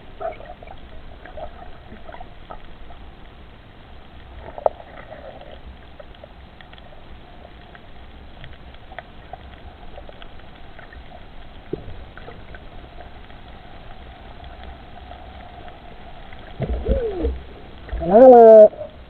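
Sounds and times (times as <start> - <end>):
faint clicks: 4.0 - 18.0.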